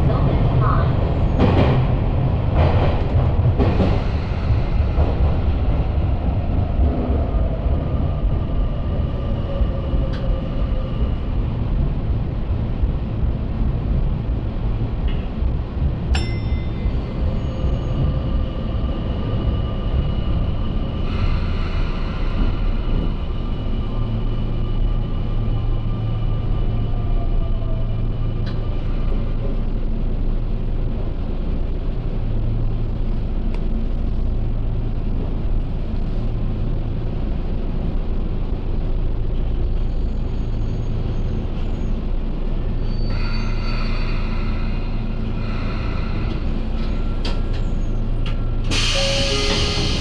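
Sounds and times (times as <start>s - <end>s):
electric train rumbling: 0.0s - 50.0s
loud hiss of air: 48.7s - 50.0s.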